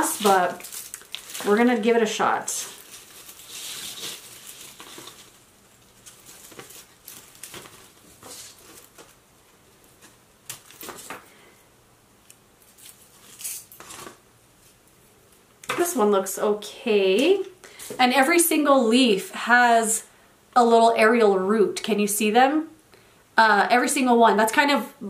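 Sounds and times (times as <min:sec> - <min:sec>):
dry leaves rustling and crackling: 0:00.0 - 0:09.2.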